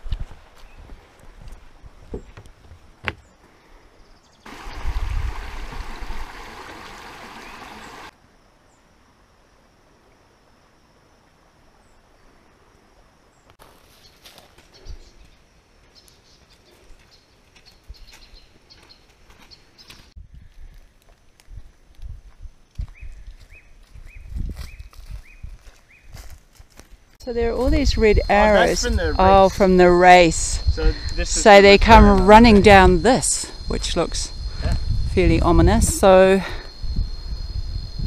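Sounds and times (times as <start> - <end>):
footsteps on dirt trail: 0.0 - 3.4, 13.6 - 29.6.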